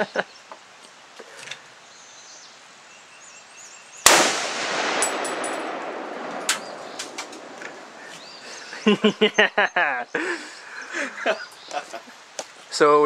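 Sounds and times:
man laughing: 0:00.0 - 0:00.3, 0:08.0 - 0:12.1
rifle shot echoing: 0:04.0 - 0:08.0.

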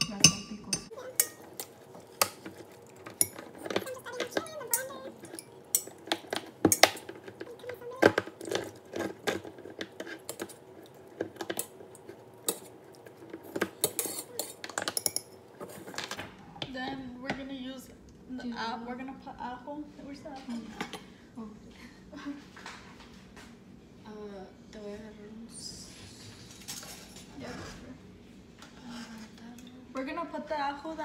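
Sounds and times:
metallic clanks: 0:00.0 - 0:01.5.

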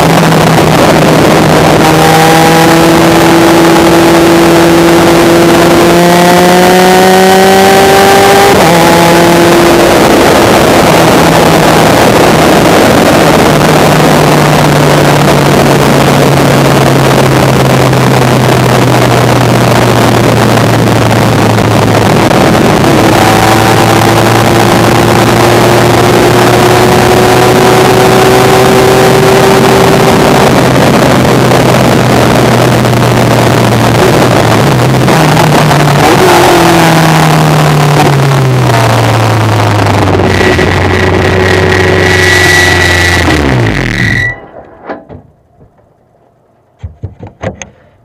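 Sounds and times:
race car engine: 0:00.0 - 0:45.1
wind and road noise: 0:00.0 - 0:48.0.

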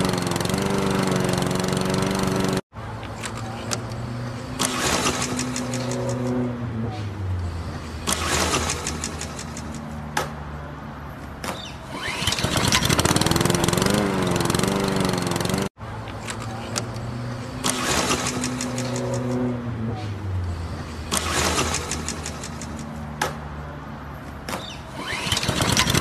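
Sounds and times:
lawn mower engine running: 0:00.0 - 0:02.6, 0:12.0 - 0:19.4, 0:25.0 - 0:26.0.

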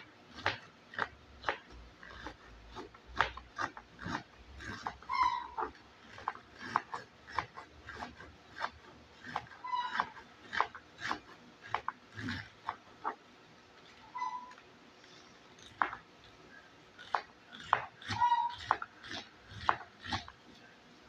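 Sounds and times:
knife slicing cabbage on board: 0:00.0 - 0:13.2, 0:17.0 - 0:20.4
short high-pitched squeal: 0:14.1 - 0:14.6.

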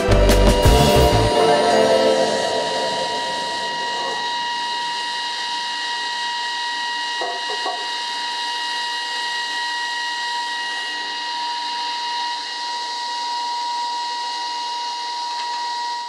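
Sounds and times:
woodworking machine whining: 0:00.0 - 0:16.0.

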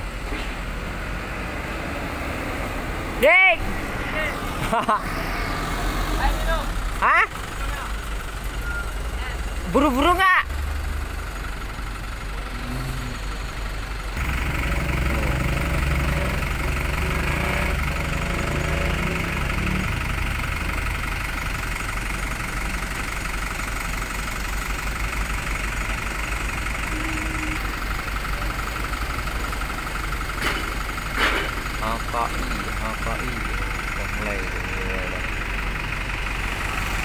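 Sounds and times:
diesel truck engine idling: 0:00.0 - 0:37.0.

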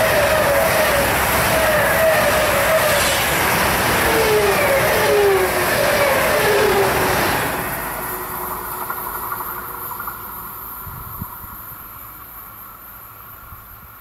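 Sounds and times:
wheel squealing tones: 0:00.0 - 0:09.4
train wheels rushing on track: 0:00.0 - 0:14.0.

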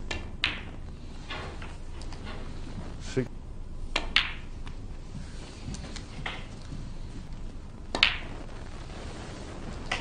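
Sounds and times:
snooker balls clacking: 0:00.0 - 0:02.4, 0:03.9 - 0:04.8, 0:06.0 - 0:06.7, 0:07.9 - 0:08.4
cue tip clicking on ball: 0:00.1 - 0:00.7, 0:03.9 - 0:04.8.

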